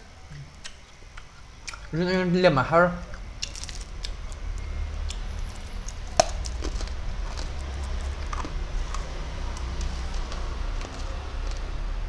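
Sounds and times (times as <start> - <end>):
steady low hum: 0.0 - 12.0
eating lollipop clicks and smacks: 6.2 - 11.7.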